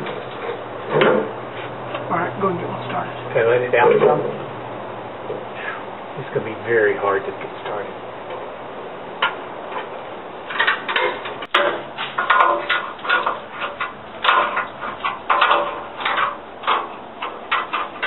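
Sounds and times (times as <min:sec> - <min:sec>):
scraping and rustling of hardware: 0:00.0 - 0:02.1, 0:07.6 - 0:18.0.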